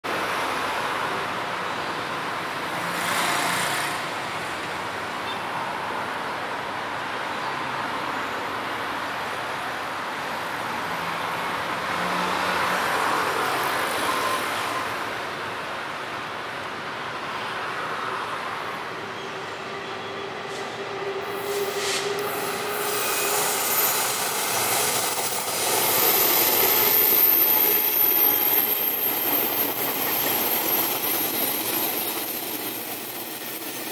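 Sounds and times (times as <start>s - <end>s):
train rumbling past: 18.9s - 33.9s
high thin whine: 20.6s - 33.9s.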